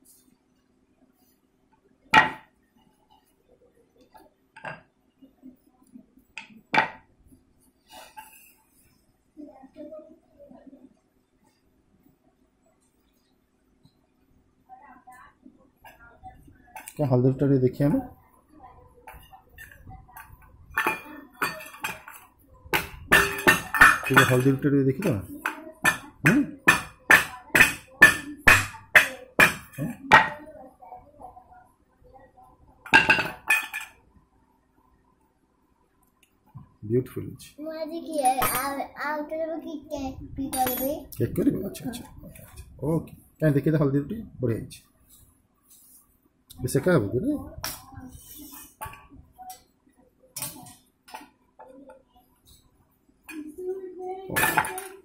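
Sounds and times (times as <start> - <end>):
rolling pin knocking in metal bowl: 22.8 - 30.3.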